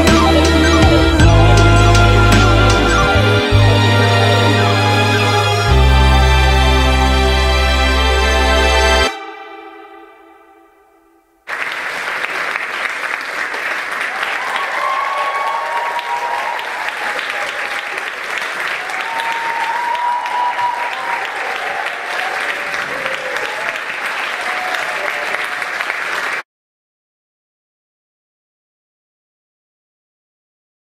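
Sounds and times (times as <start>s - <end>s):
music: 0.0s - 11.5s
audience applauding: 11.5s - 26.4s
cheers: 11.5s - 26.4s.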